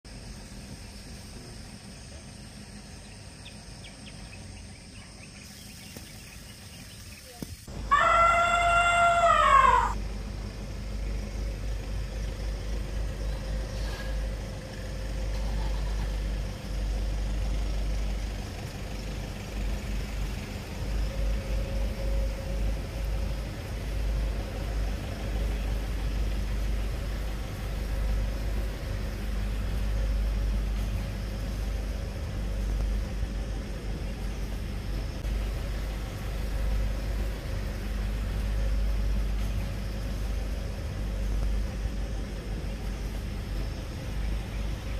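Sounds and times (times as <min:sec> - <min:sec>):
elephant trumpeting: 0:07.9 - 0:10.0
steady low rumble: 0:09.0 - 0:44.9.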